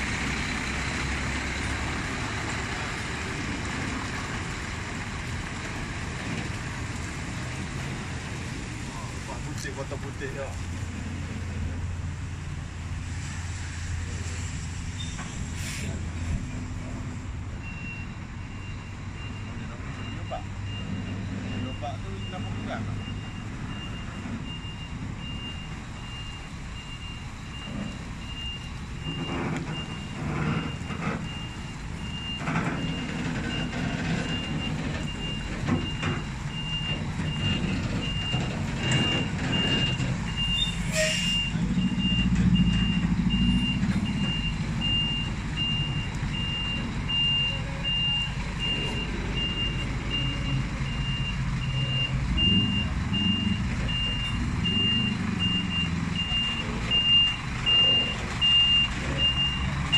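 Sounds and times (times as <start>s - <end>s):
truck diesel engine running: 0.0s - 13.0s, 20.5s - 40.8s, 41.4s - 59.9s
reversing alarm beeping: 17.6s - 59.9s.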